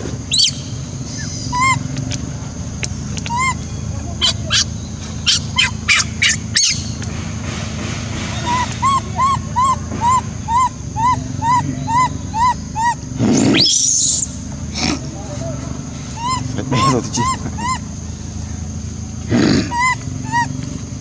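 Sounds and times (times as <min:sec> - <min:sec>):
baby monkey squealing: 0:00.3 - 0:02.0, 0:03.2 - 0:07.0, 0:08.4 - 0:15.2, 0:16.0 - 0:18.2, 0:19.3 - 0:20.8
high-pitched monkey coos: 0:00.3 - 0:02.1, 0:03.2 - 0:07.0, 0:08.4 - 0:21.0.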